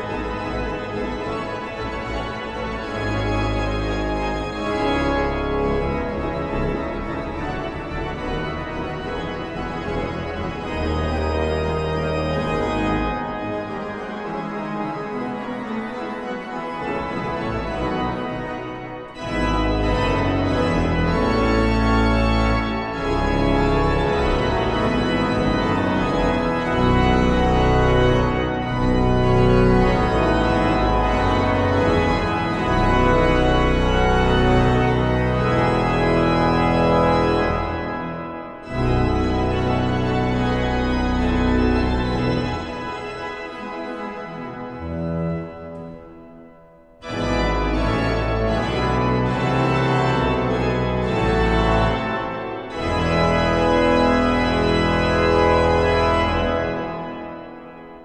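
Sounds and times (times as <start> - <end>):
church pipe organ playing: 0.0 - 58.0.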